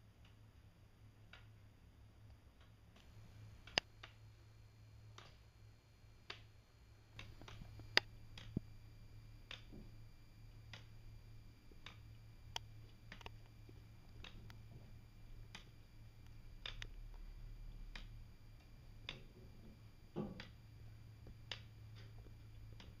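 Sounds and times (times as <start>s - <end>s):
wooden escapement ticking: 11.7s - 23.0s.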